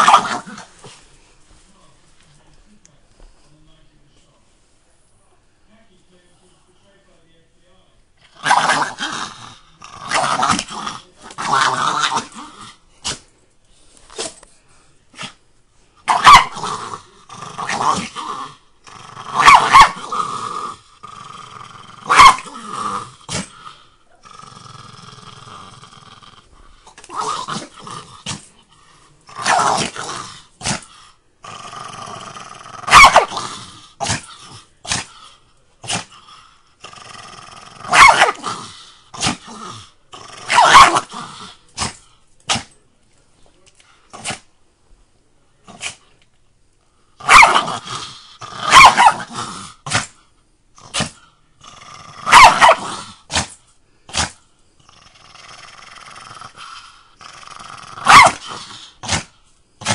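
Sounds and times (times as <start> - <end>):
small dog snarling and growling: 0.0 - 1.0, 8.4 - 13.2, 16.1 - 28.7, 29.3 - 42.8, 44.1 - 44.5, 45.7 - 46.0, 47.2 - 50.2, 50.8 - 59.9
dog barking: 16.1 - 16.6, 19.4 - 20.0, 22.1 - 22.4, 32.9 - 33.3, 37.9 - 38.4, 40.5 - 41.0, 47.2 - 47.7, 48.6 - 49.3, 52.3 - 53.5, 58.0 - 58.4.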